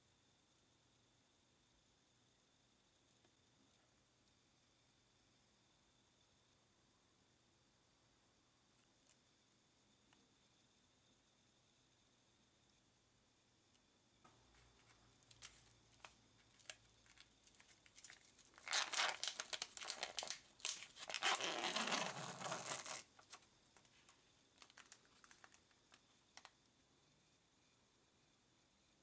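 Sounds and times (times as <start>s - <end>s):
plastic wrapper crinkling: 14.8s - 23.4s, 24.6s - 26.5s.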